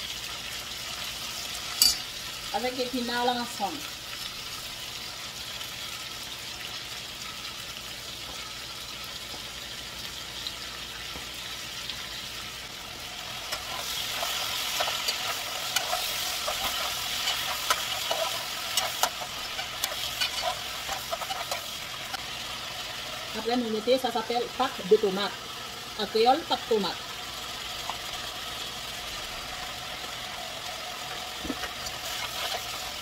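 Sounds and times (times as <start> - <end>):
greens sizzling in oil: 0.0 - 33.0
crackles and light clicks: 13.2 - 22.3, 27.6 - 28.4, 31.1 - 33.0.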